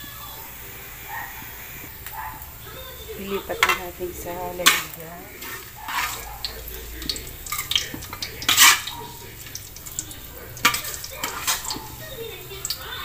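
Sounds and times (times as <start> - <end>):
metal spatula scraping a wok: 3.2 - 12.4.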